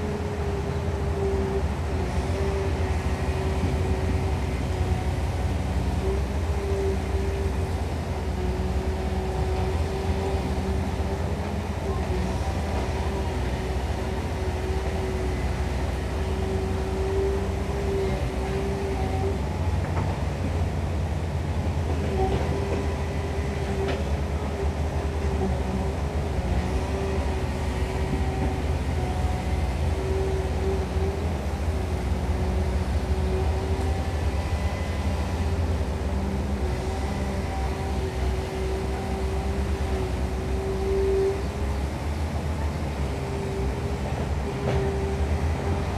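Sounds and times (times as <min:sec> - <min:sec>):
diesel engine drone: 0:00.0 - 0:45.9.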